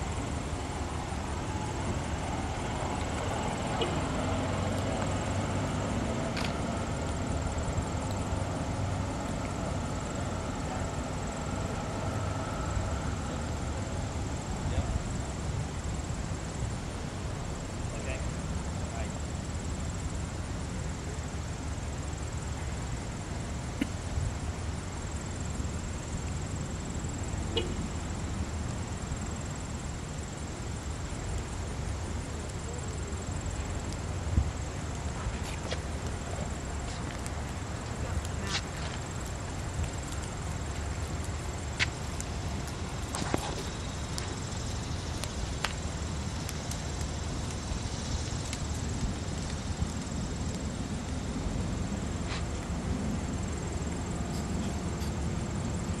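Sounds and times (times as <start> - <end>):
low outdoor rumble: 0.0 - 56.0
footsteps on paved path: 35.0 - 45.9, 52.1 - 52.7.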